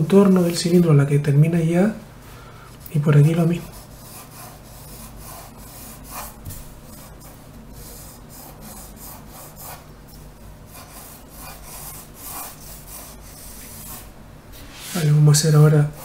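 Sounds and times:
pencil scratching on paper: 3.3s - 14.1s, 14.8s - 16.0s.

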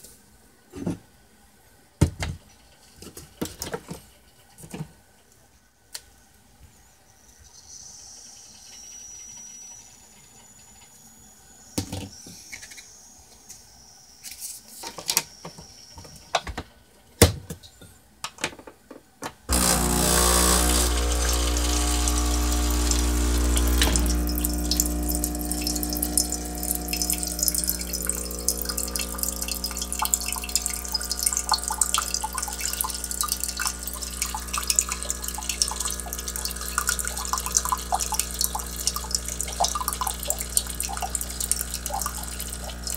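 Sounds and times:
coffee machine pump humming: 19.5s - 42.9s
coffee splashing into mug: 19.5s - 42.9s.

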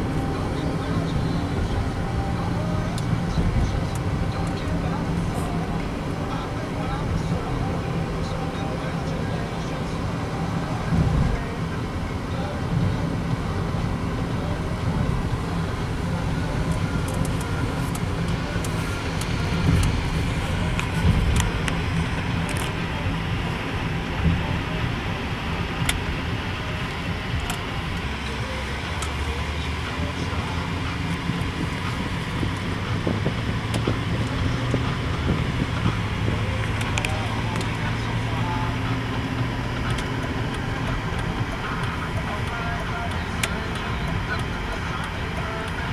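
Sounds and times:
car engine and road rumble: 0.0s - 45.9s
light sharp ticks: 39.8s - 45.9s.

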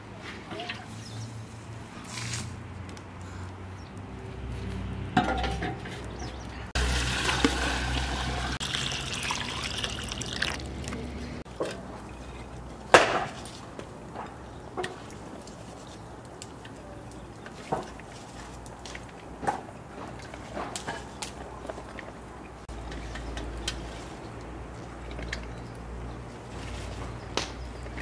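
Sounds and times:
water pouring into a pot: 6.8s - 10.9s.

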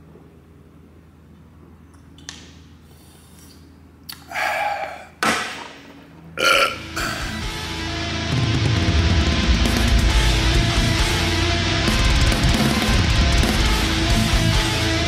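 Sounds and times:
man burping loudly: 6.4s - 7.4s
heavy guitar music: 6.4s - 15.0s.

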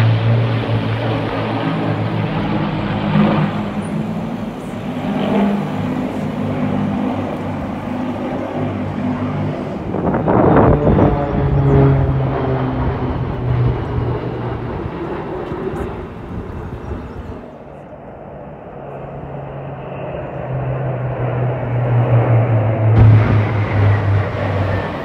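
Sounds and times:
propeller planes droning overhead: 0.0s - 25.0s
loud rush of noise: 22.5s - 25.0s.

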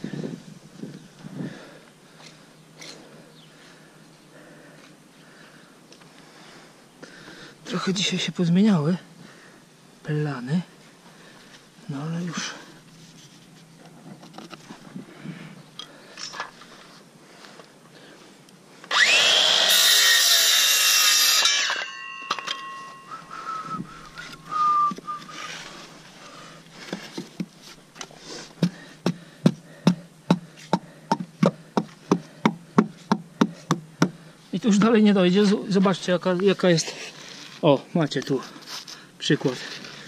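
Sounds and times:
power saw spinning: 18.9s - 23.5s.

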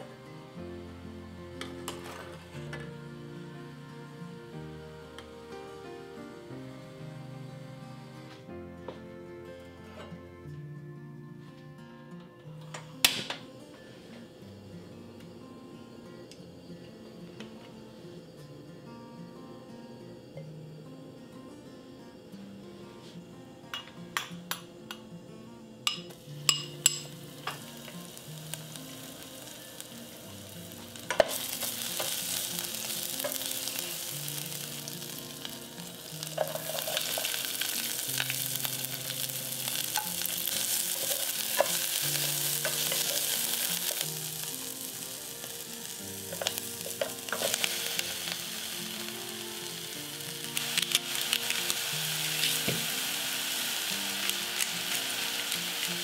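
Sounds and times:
food sizzling in oil: 25.8s - 56.0s.

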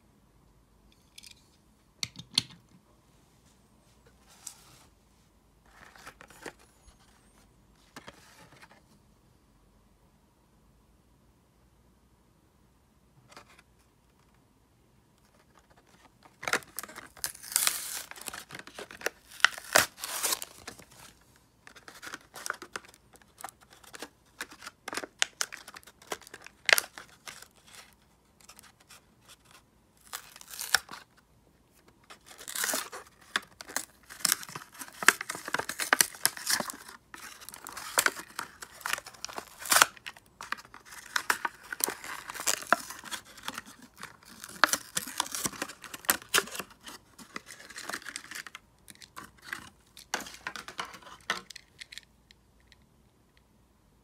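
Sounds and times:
cardboard tearing and crinkling: 16.4s - 21.1s, 30.0s - 31.0s, 32.2s - 48.5s.

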